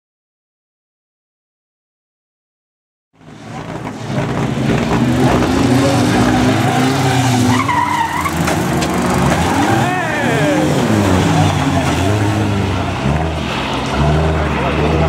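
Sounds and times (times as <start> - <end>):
racing car engines revving: 3.2 - 15.0
tyres skidding: 3.2 - 15.0.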